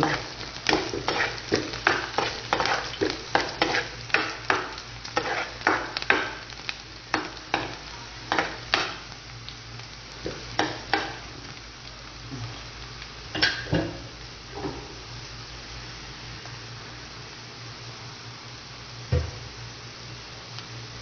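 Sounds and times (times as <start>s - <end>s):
spatula scraping a pan: 0.0s - 6.2s
onions sizzling in oil: 0.0s - 21.0s.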